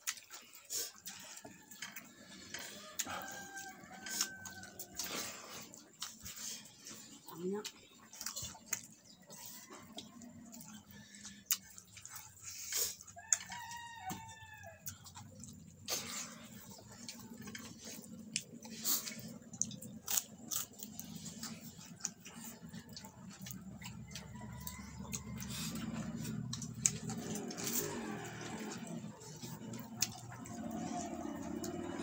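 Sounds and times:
clicks and smacks of eating: 0:00.0 - 0:32.0
rooster crowing: 0:02.6 - 0:05.4, 0:13.2 - 0:14.9, 0:24.0 - 0:26.4, 0:27.1 - 0:29.3.

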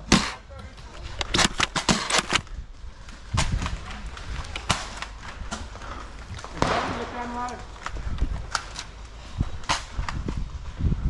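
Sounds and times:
sharp clicks and knocks: 0:01.2 - 0:02.5.

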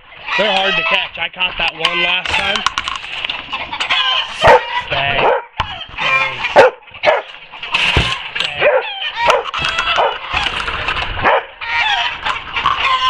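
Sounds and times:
goose honking: 0:00.0 - 0:01.2, 0:03.6 - 0:10.6, 0:11.2 - 0:13.0.

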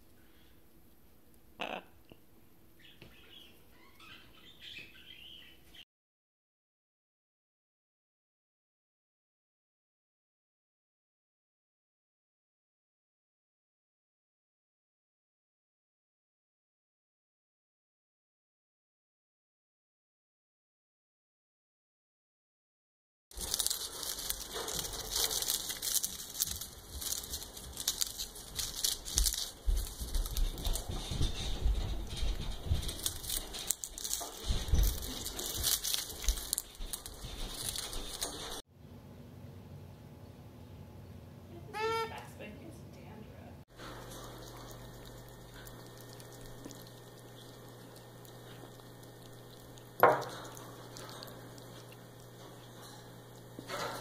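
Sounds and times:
faint room hum: 0:00.0 - 0:05.8, 0:23.3 - 0:54.0
parrot chewing toy: 0:23.3 - 0:38.6, 0:43.7 - 0:54.0.

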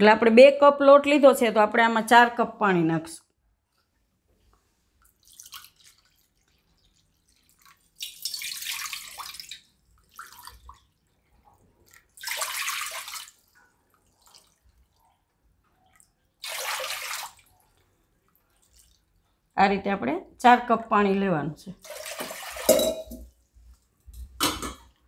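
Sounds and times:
water pouring into metal pot: 0:05.2 - 0:15.0, 0:16.4 - 0:17.8, 0:21.8 - 0:23.3.

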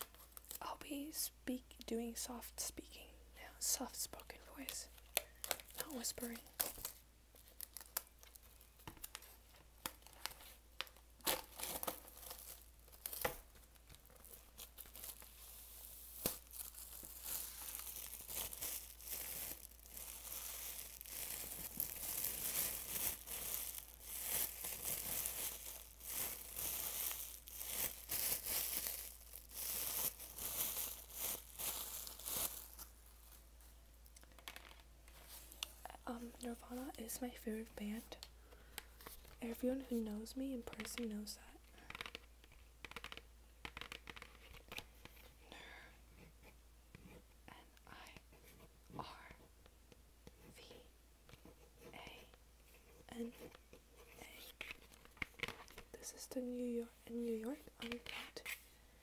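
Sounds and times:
plastic shrink-wrap tearing and crinkling: 0:05.1 - 0:10.4, 0:11.2 - 0:33.4.

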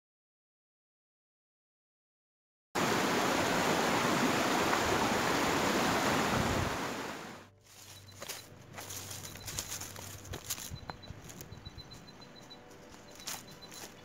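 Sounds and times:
stream rushing over rocks: 0:02.8 - 0:07.5.

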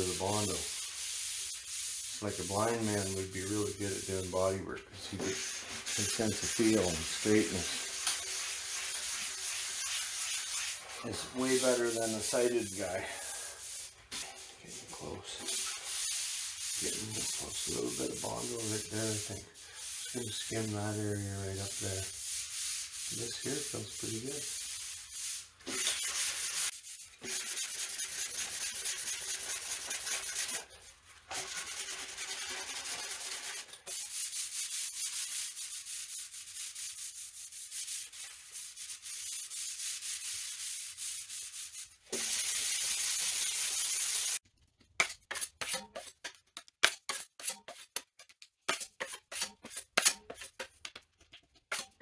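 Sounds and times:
sandpaper sanding filler: 0:00.0 - 0:04.6, 0:05.2 - 0:30.7, 0:31.3 - 0:44.4
sharp ticks and scrapes: 0:44.7 - 0:52.0.

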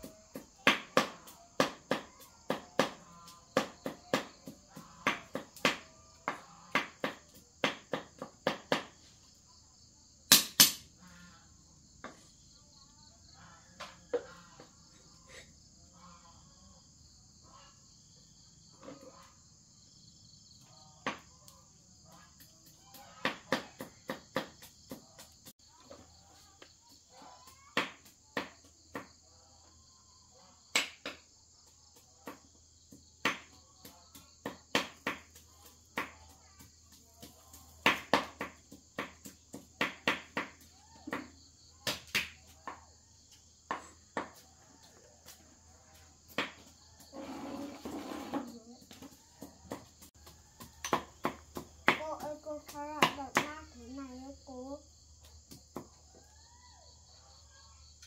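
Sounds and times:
sharp knocks and taps: 0:48.1 - 0:53.7.

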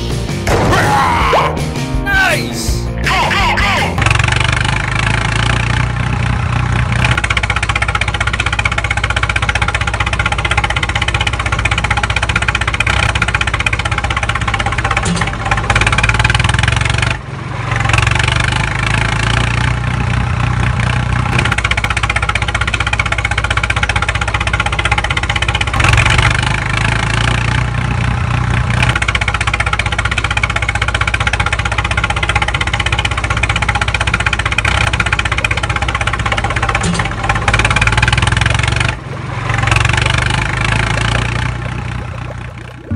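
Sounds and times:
tractor engine running: 0:00.0 - 0:42.9.

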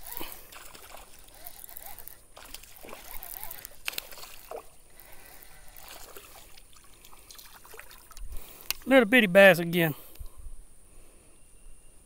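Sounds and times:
creek water sloshing: 0:00.0 - 0:09.0
small clicks: 0:01.3 - 0:04.4.

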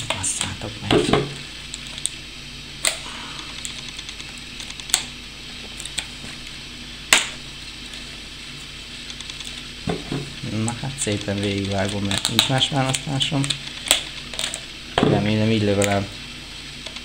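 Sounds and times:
low steady hum: 0:00.0 - 0:17.0
plastic packaging clicking and crackling: 0:11.0 - 0:14.6.

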